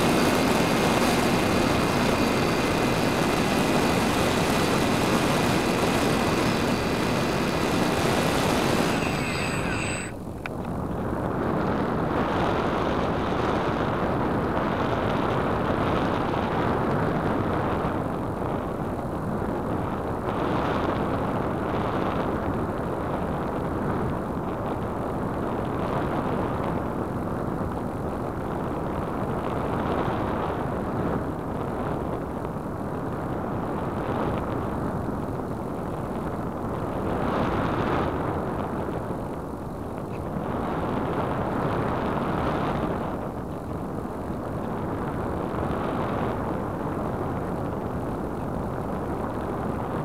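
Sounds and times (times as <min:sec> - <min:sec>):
wind roaring over microphone: 0:00.0 - 0:50.0.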